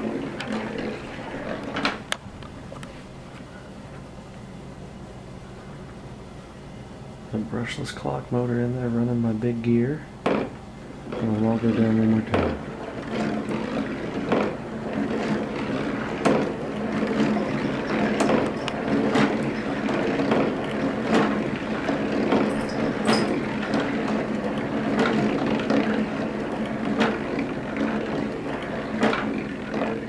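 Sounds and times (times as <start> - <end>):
marbles rolling rumble: 0.0 - 2.0, 11.1 - 30.0.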